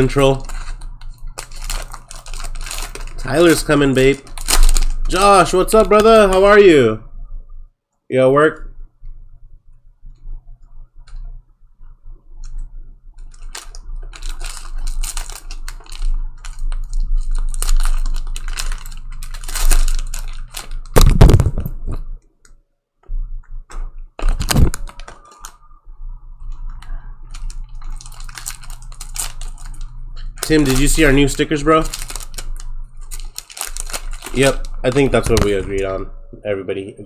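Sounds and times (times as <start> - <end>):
cellophane crinkling and tearing: 0.0 - 6.7, 13.2 - 22.1, 24.2 - 25.6, 26.4 - 36.0
heavy thumps: 20.9 - 22.2.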